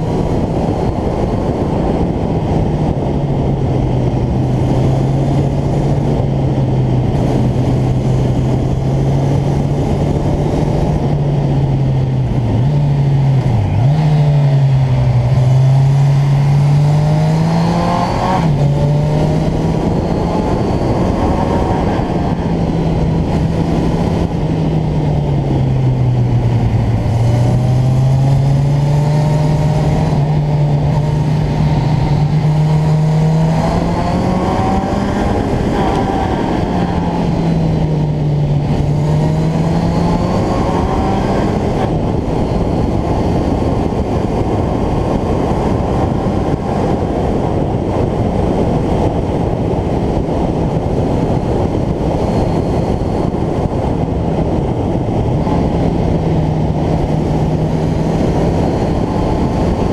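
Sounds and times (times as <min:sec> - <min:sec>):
motorcycle engine running: 0:00.0 - 0:59.9
wind rush on microphone: 0:00.0 - 0:59.9.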